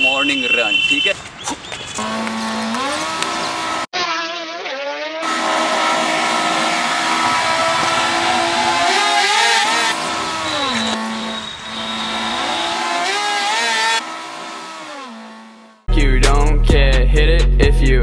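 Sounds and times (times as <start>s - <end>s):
vehicle engine revving: 2.0s - 3.9s, 5.2s - 15.9s.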